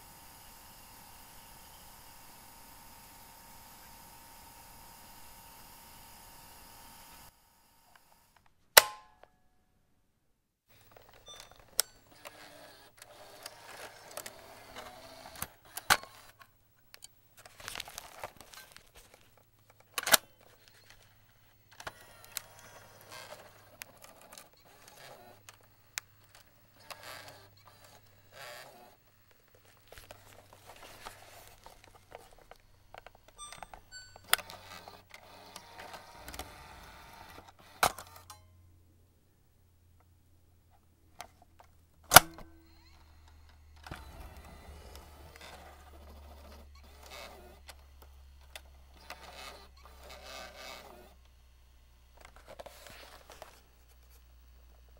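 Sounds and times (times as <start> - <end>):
plastic rattling and scraping: 10.7 - 33.4
sharp plastic clicks: 41.2 - 42.5.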